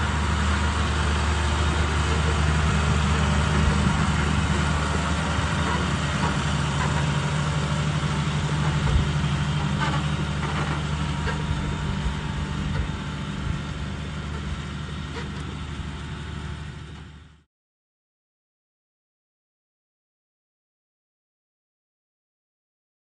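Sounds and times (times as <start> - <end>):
tractor engine running: 0.0 - 17.4.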